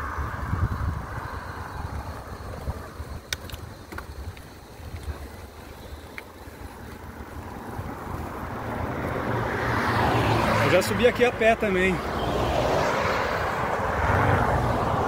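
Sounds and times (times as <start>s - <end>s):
wind buffeting microphone: 0.0s - 15.0s
faint clicks: 3.2s - 7.0s.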